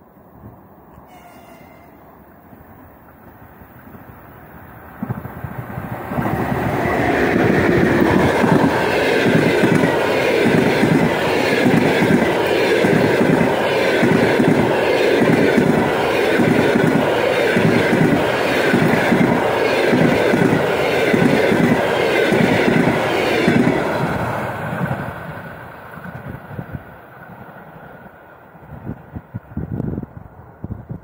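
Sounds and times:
rushing rolling noise: 3.2s - 26.6s.

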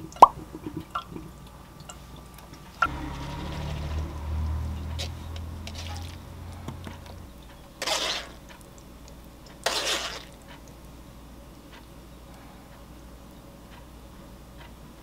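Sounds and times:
low hum: 0.0s - 9.5s
pasta sliding into bowl: 7.8s - 8.4s, 9.6s - 10.3s.

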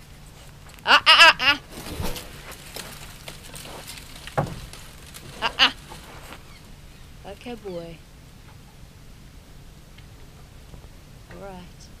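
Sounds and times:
high-pitched warbling animal calls: 0.9s - 1.6s, 5.4s - 5.8s.

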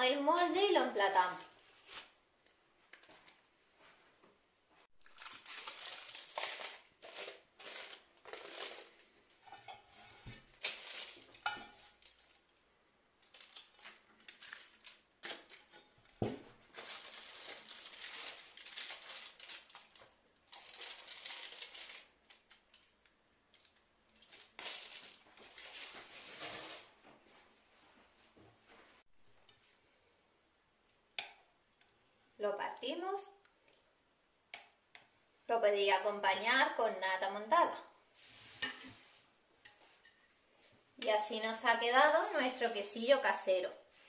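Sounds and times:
aluminium foil crinkling: 5.0s - 12.6s, 13.2s - 26.9s.

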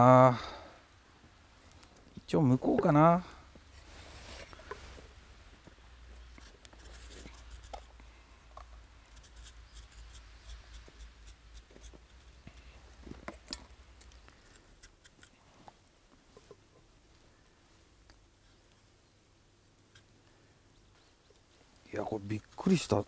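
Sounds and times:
knife scraping root skin: 6.2s - 7.9s, 9.1s - 12.7s, 14.3s - 15.4s.

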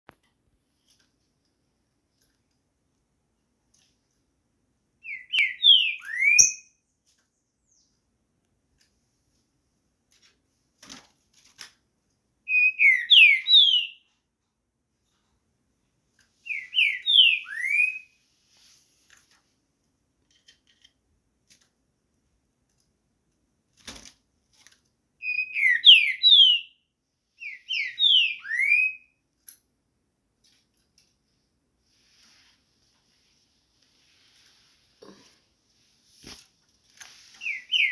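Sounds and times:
bird whistling song phrase: 5.0s - 6.8s, 12.5s - 14.0s, 16.5s - 18.1s, 25.2s - 26.8s, 27.4s - 29.1s, 37.4s - 37.9s.

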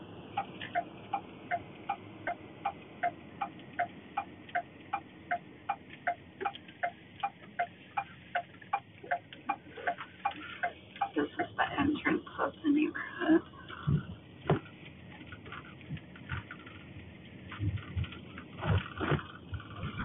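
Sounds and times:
faint road noise: 0.0s - 20.0s
turn signal clicking: 0.4s - 11.5s.

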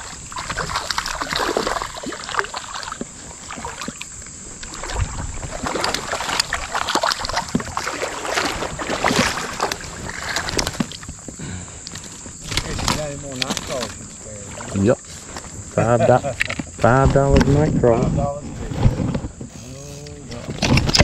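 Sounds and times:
fish splashing at water surface: 0.0s - 11.2s.

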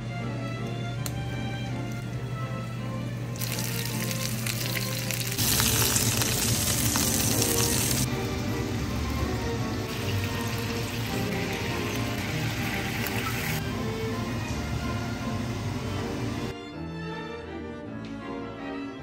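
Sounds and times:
background music: 0.0s - 19.0s
fish sizzling in oil: 3.4s - 8.1s.

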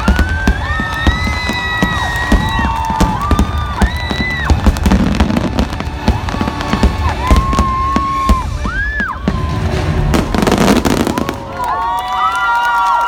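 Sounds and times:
fireworks bangs and crackles: 0.0s - 12.0s
soundtrack music with held notes: 4.1s - 11.4s.

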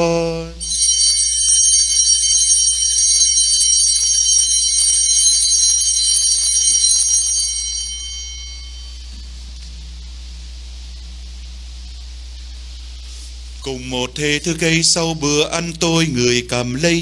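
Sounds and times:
small bells jingling: 0.6s - 9.2s.

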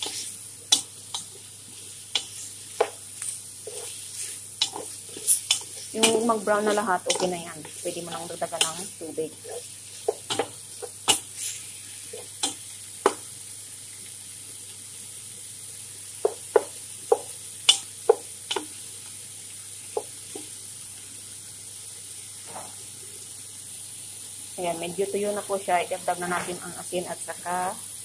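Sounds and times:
chicken sizzling in pan: 0.0s - 28.0s
wooden spatula scraping pan: 2.1s - 12.3s.

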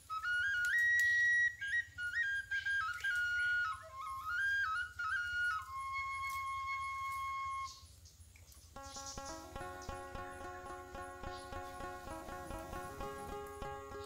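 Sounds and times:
solo flute melody: 0.0s - 7.9s, 8.8s - 14.0s.

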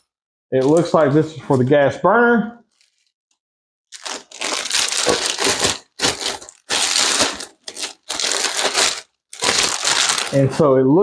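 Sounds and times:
plastic bag crinkling: 2.7s - 3.2s, 3.9s - 10.6s.

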